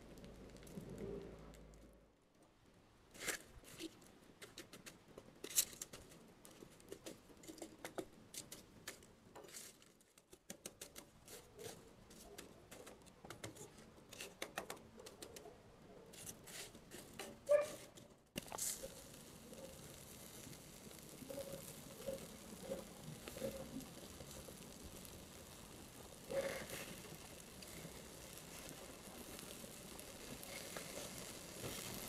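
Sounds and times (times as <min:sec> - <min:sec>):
burning embers crackling and popping: 0:00.0 - 0:02.0, 0:18.2 - 0:32.0
coals clinking under poker: 0:18.4 - 0:32.0.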